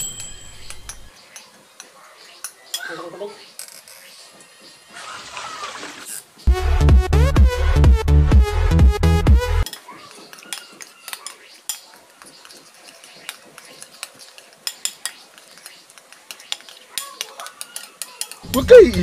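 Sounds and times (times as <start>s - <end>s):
metal spoon stirring batter in bowl: 9.7s - 18.5s.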